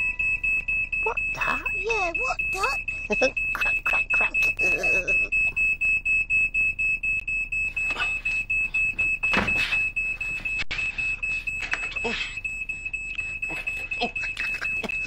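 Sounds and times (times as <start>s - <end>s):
smoke alarm beeping: 0.0s - 15.0s
person speaking: 1.0s - 5.3s.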